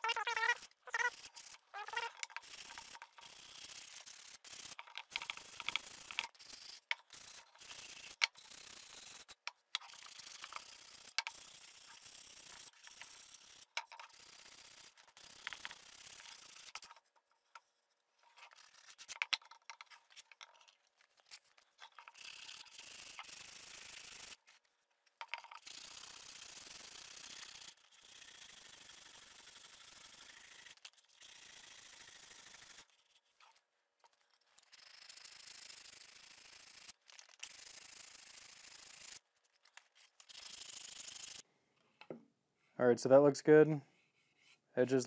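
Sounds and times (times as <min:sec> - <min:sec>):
sandpaper rubbing on wood: 0:00.0 - 0:09.3.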